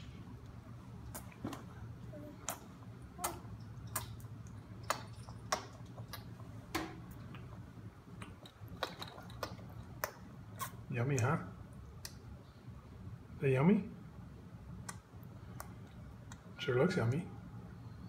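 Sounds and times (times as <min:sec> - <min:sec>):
baby eating with small smacks: 0:00.0 - 0:12.8, 0:14.6 - 0:16.6
low steady hum: 0:00.0 - 0:18.0.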